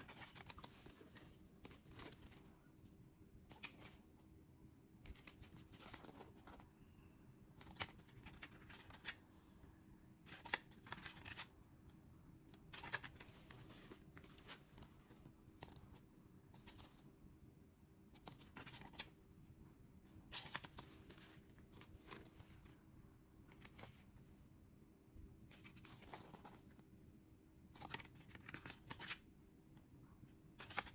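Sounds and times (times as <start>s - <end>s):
cd sleeves rustling and clicking: 0.0s - 2.5s, 3.5s - 4.0s, 5.1s - 6.7s, 7.6s - 9.2s, 10.3s - 11.5s, 12.5s - 17.0s, 18.2s - 19.1s, 20.3s - 22.8s, 23.5s - 24.1s, 25.5s - 26.8s, 27.7s - 29.2s, 30.6s - 30.9s.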